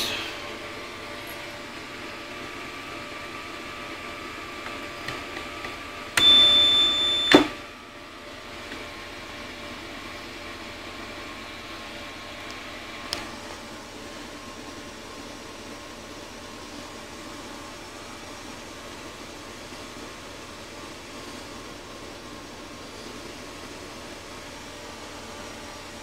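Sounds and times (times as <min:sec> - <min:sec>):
electrical hum: 0:00.0 - 0:26.0.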